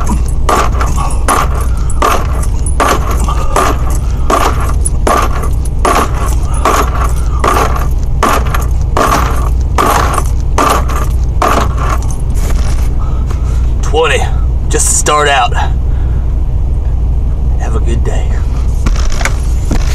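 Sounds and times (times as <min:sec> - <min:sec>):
rhythmic metallic bed rattle: 0:00.0 - 0:14.3
steady low hum: 0:00.0 - 0:19.9.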